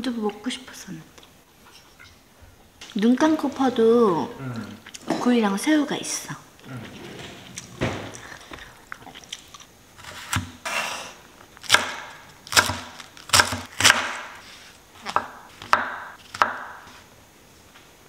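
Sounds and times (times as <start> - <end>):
knife chopping on wooden board: 11.6 - 14.4, 15.0 - 17.0.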